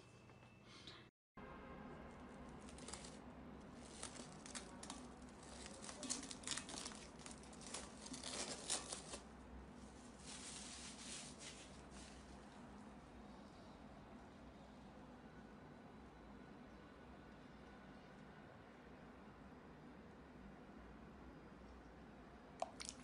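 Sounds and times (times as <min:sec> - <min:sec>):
plastic wrap crinkling: 0:02.5 - 0:12.5.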